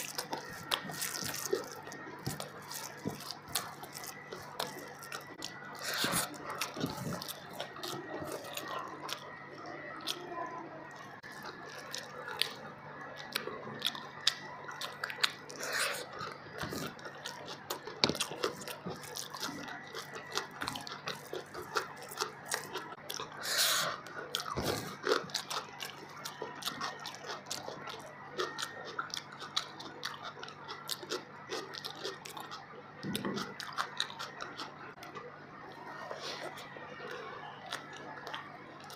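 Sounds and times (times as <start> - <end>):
person chewing food: 0.0 - 38.9.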